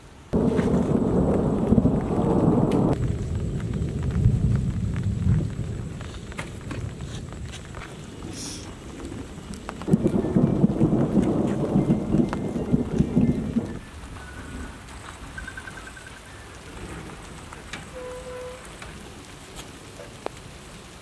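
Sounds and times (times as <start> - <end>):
rain falling: 0.0 - 21.0
thunder rumble: 0.3 - 21.0.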